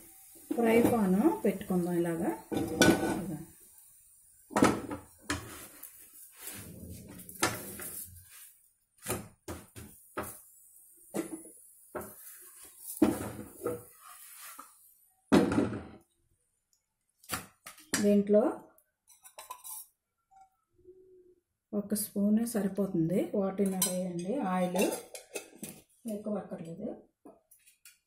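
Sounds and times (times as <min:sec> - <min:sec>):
kitchenware knocks and clatters: 0:02.5 - 0:03.4, 0:04.5 - 0:05.5, 0:13.0 - 0:13.9, 0:15.3 - 0:16.0, 0:24.6 - 0:25.9.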